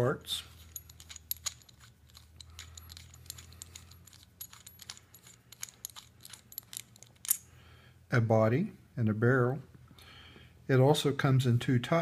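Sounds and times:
metallic clicks and clinks: 0.4s - 7.5s.

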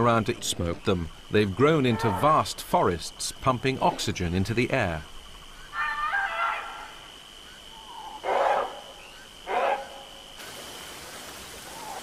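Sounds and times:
rasping animal calls: 5.7s - 7.1s, 7.8s - 10.1s.

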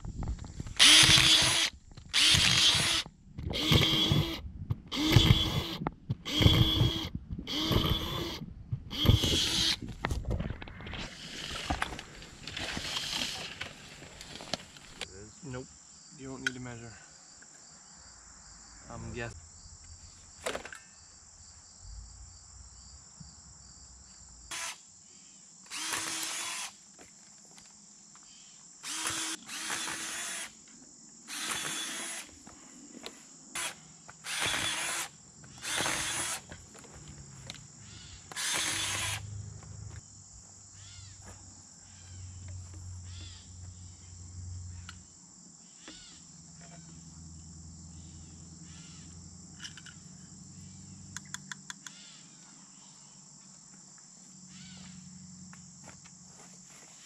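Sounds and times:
high insect trilling: 0.8s - 9.9s, 28.1s - 53.2s.

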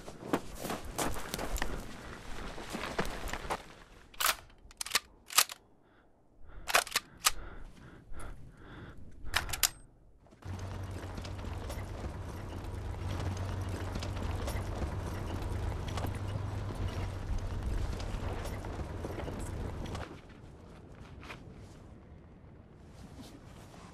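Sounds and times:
low humming drone: 10.4s - 20.0s.

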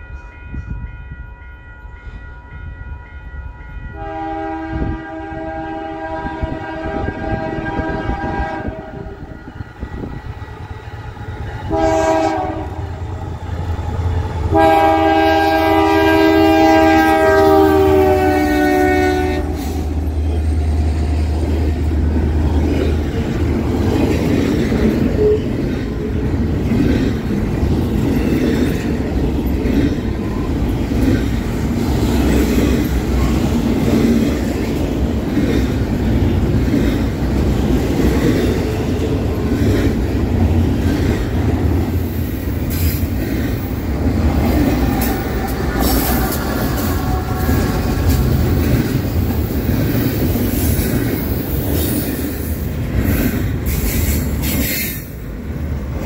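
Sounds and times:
locomotive air horn: 3.8s - 10.4s, 11.4s - 13.4s, 14.4s - 21.2s, 25.2s - 25.5s, 44.7s - 48.7s
train wheels clacking on rails: 19.5s - 56.0s.

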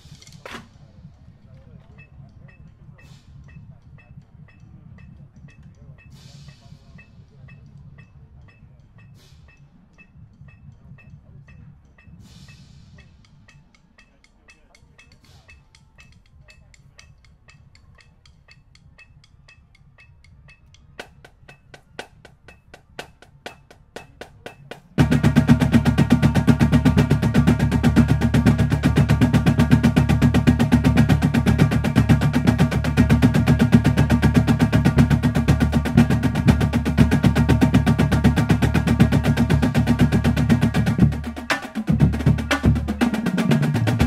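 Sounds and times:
snare drums: 0.0s - 1.0s, 20.4s - 44.0s
bass drums: 21.0s - 44.0s.

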